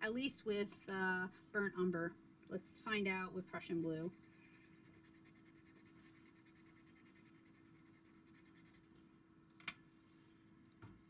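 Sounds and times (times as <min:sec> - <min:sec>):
steady low hum: 0:00.0 - 0:11.0
pencil scratching on paper: 0:03.6 - 0:08.9.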